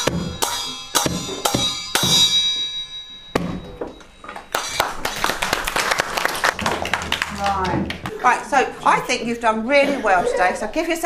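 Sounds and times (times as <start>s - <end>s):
high metallic ring: 0.0s - 5.3s
drum and hand-percussion strikes: 0.0s - 5.8s, 6.5s - 8.2s.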